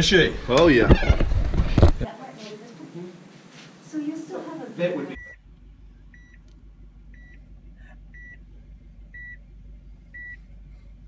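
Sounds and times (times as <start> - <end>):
car warning chime beeping: 5.1 - 5.4, 6.1 - 6.5, 7.1 - 7.5, 8.1 - 8.4, 9.1 - 9.5, 10.1 - 10.4
low hum in car cabin: 5.1 - 11.0.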